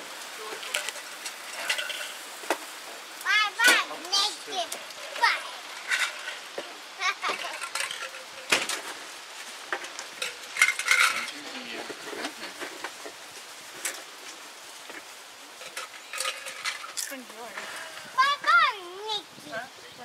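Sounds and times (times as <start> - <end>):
tableware clinking: 0.8 - 2.2, 15.6 - 17.2.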